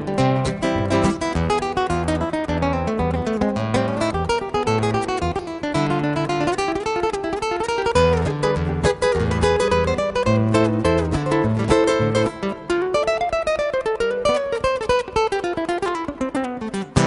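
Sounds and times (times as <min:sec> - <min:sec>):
fast acoustic guitar music: 0:00.0 - 0:17.0.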